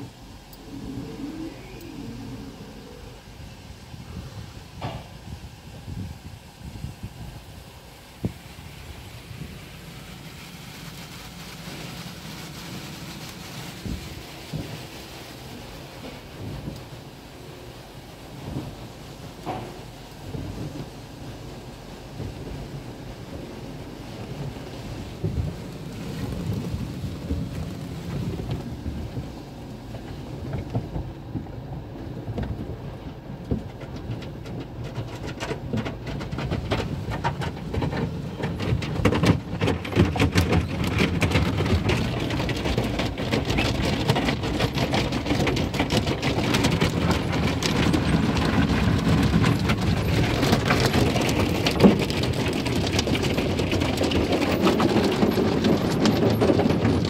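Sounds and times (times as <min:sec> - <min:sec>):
water spraying on car: 0:00.0 - 0:57.0
cloth strips drumming on car: 0:24.1 - 0:57.0.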